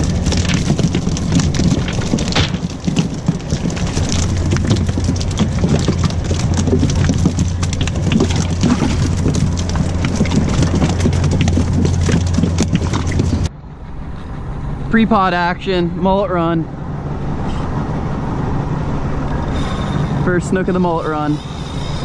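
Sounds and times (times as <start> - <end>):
fish flapping and slapping: 0.0 - 13.5
steady low rumble: 0.0 - 22.0.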